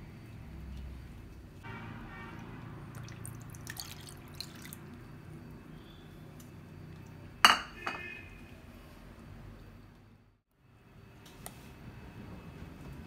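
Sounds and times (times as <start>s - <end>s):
water splashing and dripping: 2.3s - 5.1s.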